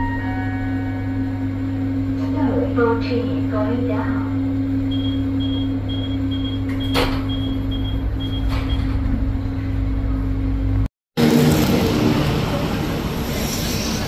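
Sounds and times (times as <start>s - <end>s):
door-warning beeper: 4.9s - 9.2s.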